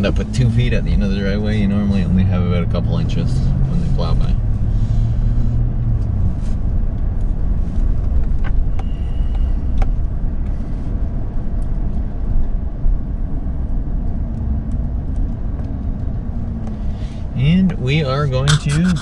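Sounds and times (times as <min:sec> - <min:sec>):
truck engine and road rumble: 0:00.0 - 0:19.0.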